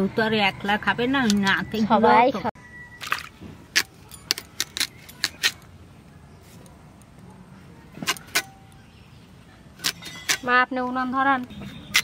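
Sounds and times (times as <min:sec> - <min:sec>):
crisp cutting of taro: 0:03.7 - 0:05.6.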